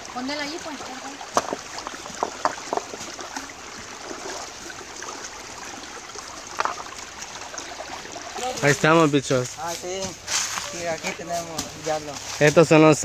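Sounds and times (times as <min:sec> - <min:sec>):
river running over rocks: 0:00.0 - 0:13.0.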